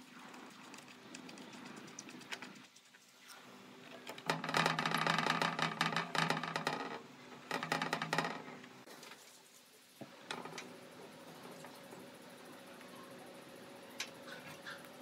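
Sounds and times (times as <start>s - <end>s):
steady low hum: 10.0s - 15.0s.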